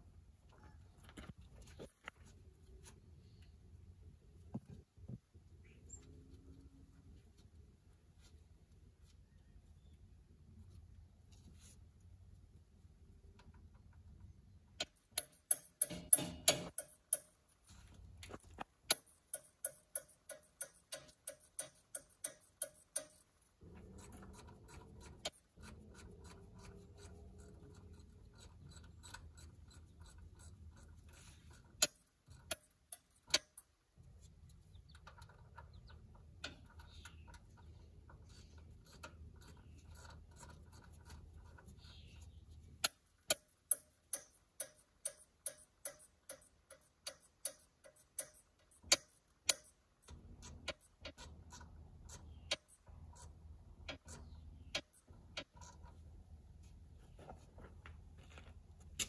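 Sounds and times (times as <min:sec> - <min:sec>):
ratchet wrench clicking: 0:18.9 - 0:23.2.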